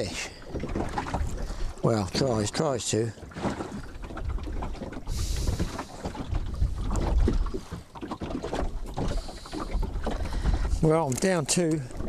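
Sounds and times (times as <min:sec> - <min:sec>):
wind rumbling on microphone: 0:00.0 - 0:02.5, 0:03.6 - 0:12.0.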